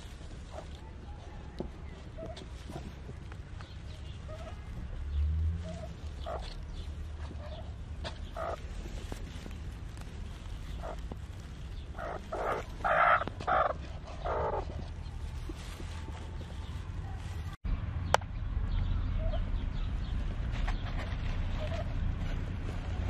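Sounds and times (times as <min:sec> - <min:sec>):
steady low rumble: 0:00.0 - 0:23.0
hen clucking: 0:00.5 - 0:03.0, 0:03.6 - 0:05.0, 0:05.6 - 0:09.6, 0:10.4 - 0:16.4.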